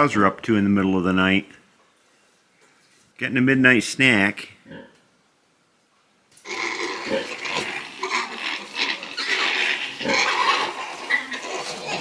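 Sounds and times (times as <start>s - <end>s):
pigs squealing and grunting: 6.4s - 12.0s.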